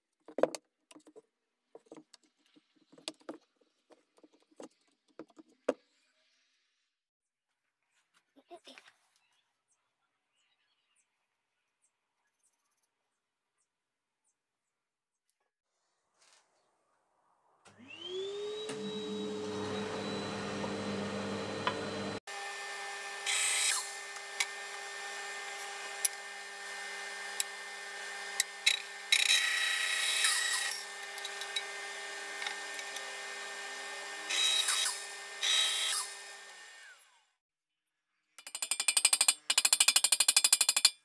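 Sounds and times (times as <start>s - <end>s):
bandsaw motor whine: 17.8s - 37.4s.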